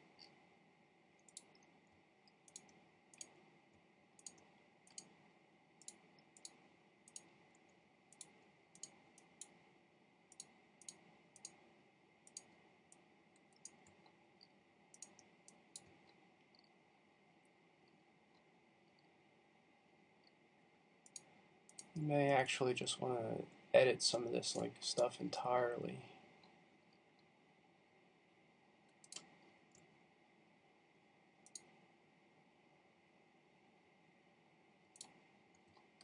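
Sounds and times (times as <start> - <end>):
computer mouse clicking: 0.0 - 0.4, 1.2 - 9.7, 10.3 - 16.8, 21.0 - 22.1, 28.9 - 29.9, 31.4 - 31.8, 34.9 - 36.0
thin steady background tone: 0.0 - 36.0.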